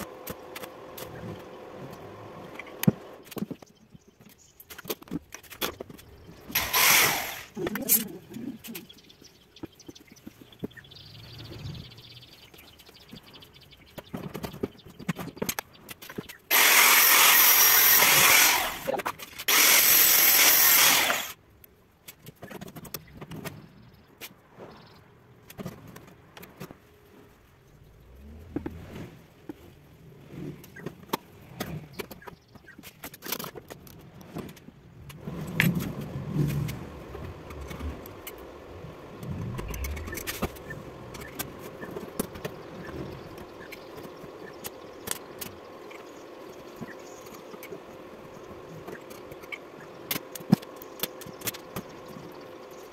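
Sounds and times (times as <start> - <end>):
crackling welding arc: 6.5 - 7.8, 16.5 - 21.4.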